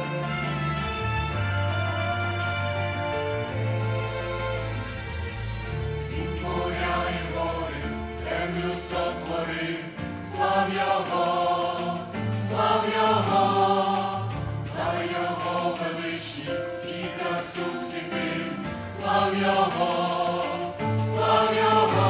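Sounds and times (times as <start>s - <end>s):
mixed choir singing a hymn: 6.0s - 22.0s.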